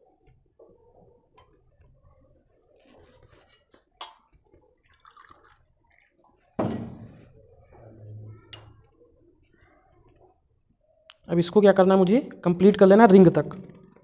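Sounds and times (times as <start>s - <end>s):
water splashing into glass beaker: 4.8s - 5.6s
jug knocking on table: 6.6s - 7.2s.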